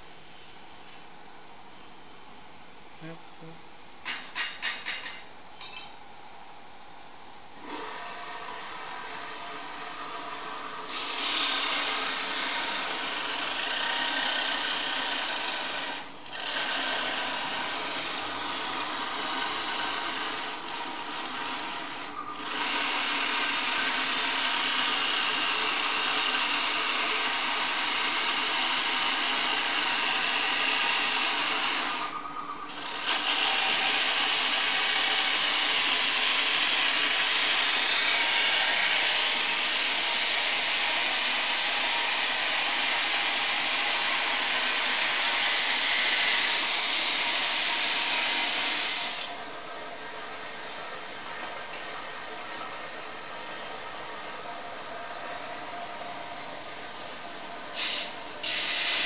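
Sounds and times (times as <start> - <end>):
cut-off saw grinding steel: 7.6 - 49.4, 57.6 - 59.0.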